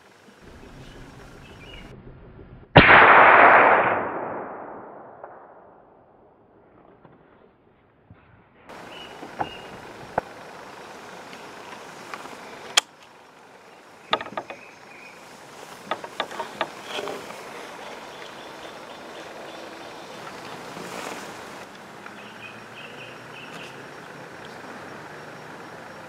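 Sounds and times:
outdoor background noise: 0.0 - 26.0
faint high chirps: 8.7 - 9.9, 22.1 - 26.0.

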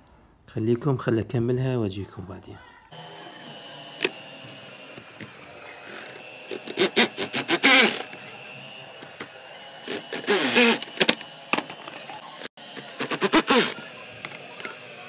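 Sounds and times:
cordless drill driving screws: 3.0 - 15.0.

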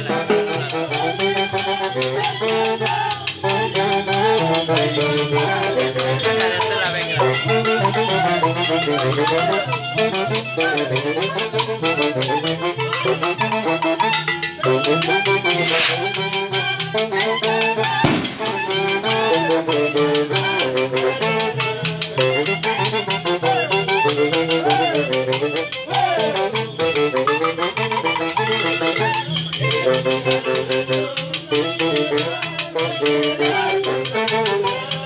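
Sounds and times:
horns playing melody: 0.0 - 35.0
metal guiro scraping: 15.4 - 16.2.

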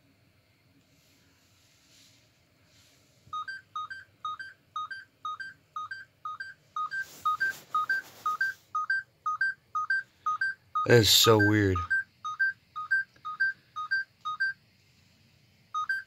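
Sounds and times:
two-tone electronic beeping: 3.3 - 14.6, 15.8 - 16.0
handling rustle: 6.9 - 8.4.

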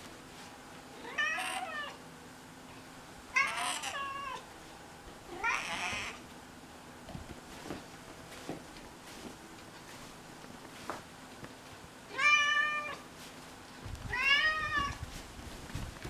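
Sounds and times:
cat meowing: 1.0 - 2.0, 3.4 - 4.4, 5.3 - 6.2, 12.1 - 13.0, 14.1 - 15.0.

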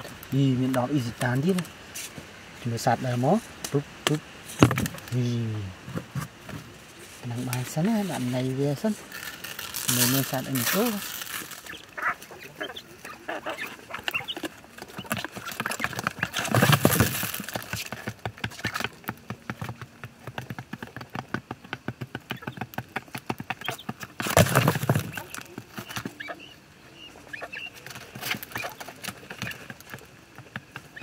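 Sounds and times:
birds chirping: 0.0 - 31.0
pecking and scratching clicks: 9.1 - 26.4.

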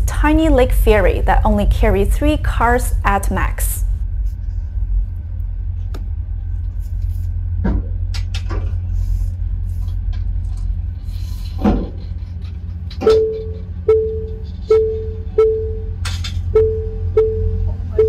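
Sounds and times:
steady low rumble: 0.0 - 18.0
parking sensor warning beeps: 13.0 - 18.0.

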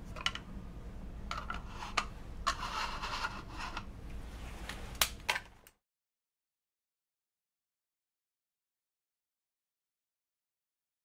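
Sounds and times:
low steady hum: 0.0 - 5.7.

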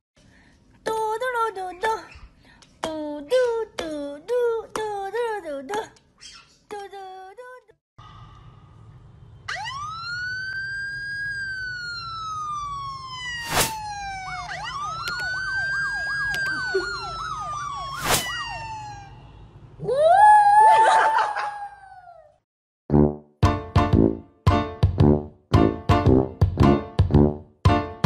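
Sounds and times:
siren wailing and yelping: 9.5 - 22.2.

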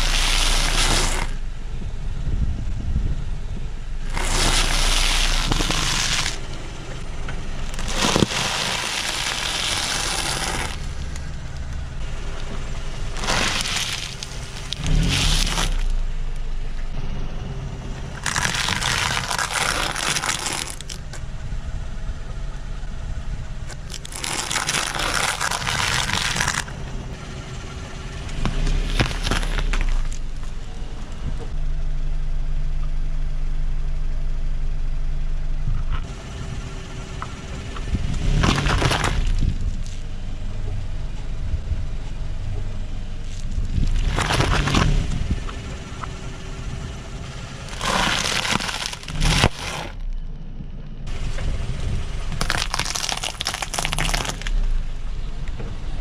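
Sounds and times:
tyre crushing crunchy food: 0.0 - 1.4, 4.1 - 6.5, 7.7 - 11.3, 13.1 - 16.0, 18.2 - 21.2, 23.7 - 26.7, 28.4 - 30.2, 38.2 - 40.0, 43.2 - 45.1, 47.5 - 50.1, 52.4 - 54.6
car engine hum: 0.0 - 56.0.

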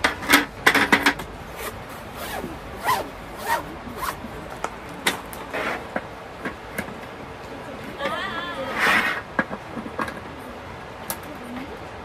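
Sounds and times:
zipper being pulled: 1.6 - 4.2.

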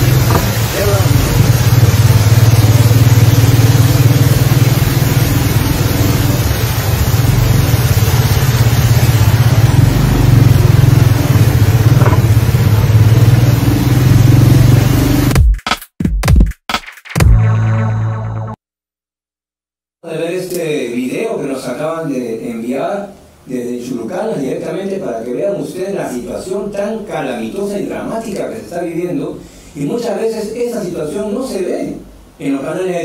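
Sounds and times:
rushing water noise: 0.0 - 15.3
vehicle engine running: 0.0 - 15.4.

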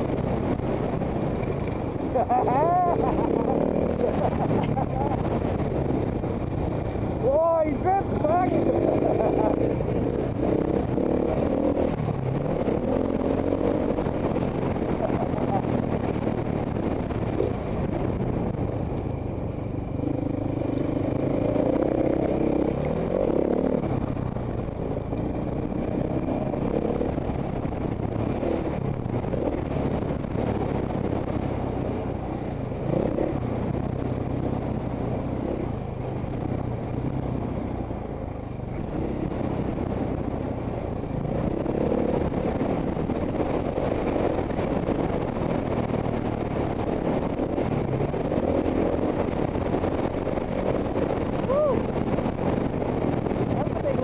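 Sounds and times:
dirt bike engine revving: 2.2 - 5.9.

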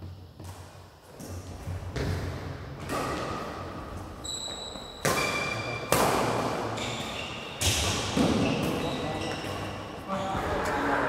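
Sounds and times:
racket hitting shuttlecock: 2.0 - 3.9, 4.9 - 9.7
court shoes squeaking: 2.8 - 11.0.

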